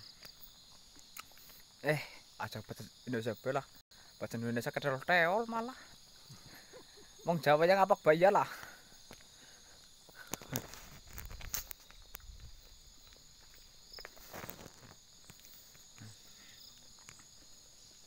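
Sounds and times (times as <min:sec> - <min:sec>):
insects droning: 0:00.0 - 0:18.0
footsteps on dirt: 0:08.4 - 0:18.0.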